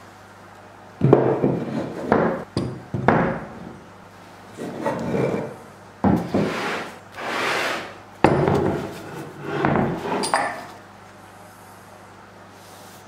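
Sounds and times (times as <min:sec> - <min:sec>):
vise knocking on workbench: 0:01.0 - 0:03.4, 0:08.2 - 0:08.9
vise rubbing on workbench: 0:06.2 - 0:10.4.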